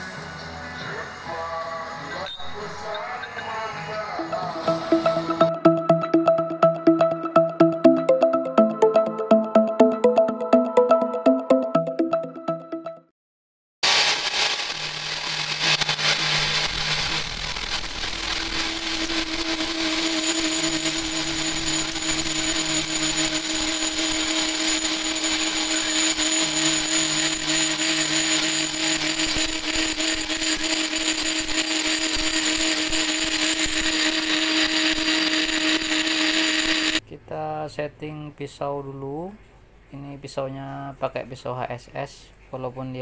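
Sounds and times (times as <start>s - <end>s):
lathe whine: 13.8s - 37.0s
metal lathe cutting: 13.9s - 37.0s.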